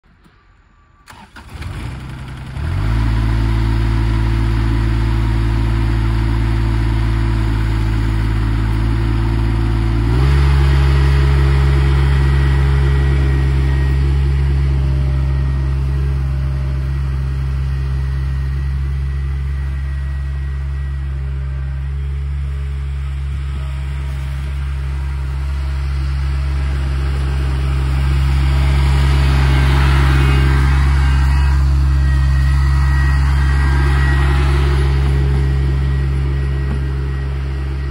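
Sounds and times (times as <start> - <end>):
tractor diesel engine running: 1.0 - 37.9.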